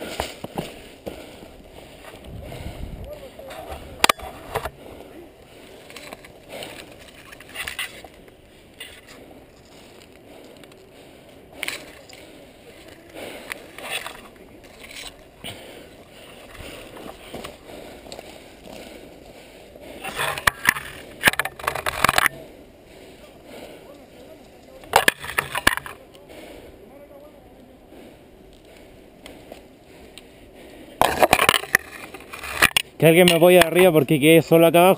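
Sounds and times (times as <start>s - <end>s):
footsteps on dry dirt: 0.0s - 7.1s, 7.9s - 19.7s
branches and dry grass rustling: 0.0s - 34.9s.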